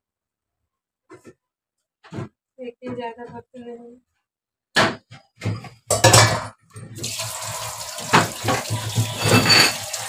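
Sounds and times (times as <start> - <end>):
dishes clattering: 4.8 - 7.1, 8.0 - 10.0
tap water running into sink: 7.0 - 10.0.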